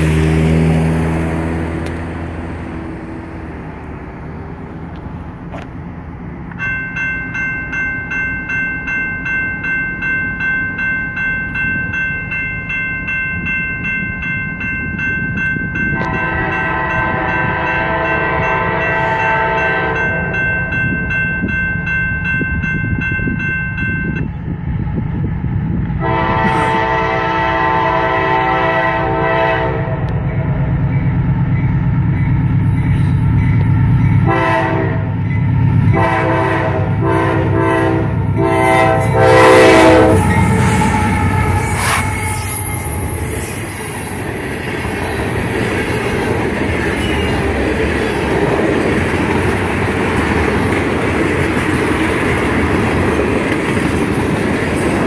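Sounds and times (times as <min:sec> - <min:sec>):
locomotive engine rumble: 0:00.0 - 0:08.2
railroad crossing bell ringing: 0:06.2 - 0:55.0
locomotive horn blasts: 0:15.9 - 0:20.4, 0:26.0 - 0:30.5, 0:34.2 - 0:35.1, 0:35.8 - 0:43.6.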